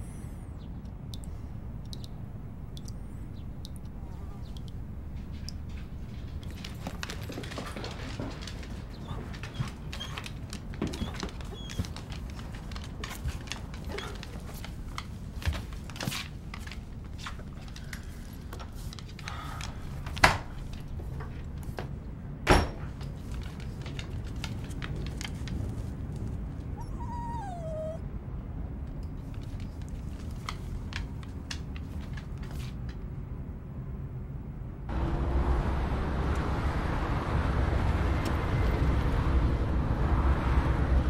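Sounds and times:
dog whining: 10.9s - 12.0s, 26.7s - 28.0s.

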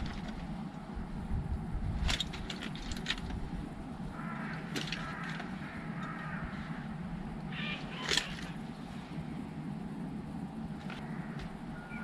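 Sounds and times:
wind: 0.0s - 12.0s
bird calling: 3.8s - 9.4s, 10.6s - 12.0s.

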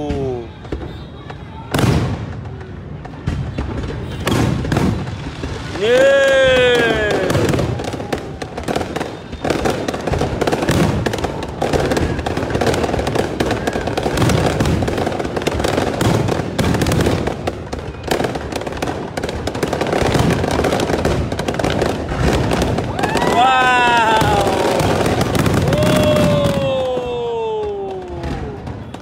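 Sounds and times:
fireworks crackling: 0.0s - 29.0s
deep firework booms: 1.7s - 29.0s.

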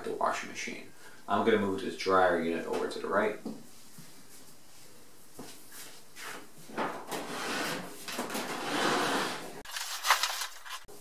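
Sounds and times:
dryer scraping across tile floor: 6.8s - 9.6s.

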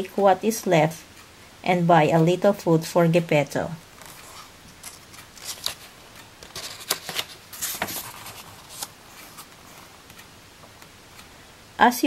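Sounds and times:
book page turning: 4.0s - 9.5s.

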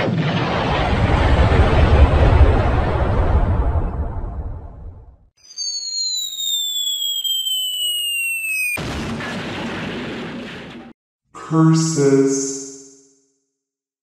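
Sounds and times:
cartoon explosions: 0.0s - 11.0s
falling high whistle: 5.4s - 8.8s.

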